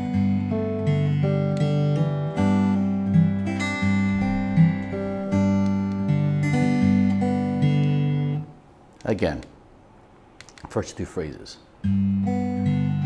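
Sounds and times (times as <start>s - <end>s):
fingerpicked acoustic guitar: 0.0s - 8.6s, 11.8s - 13.0s.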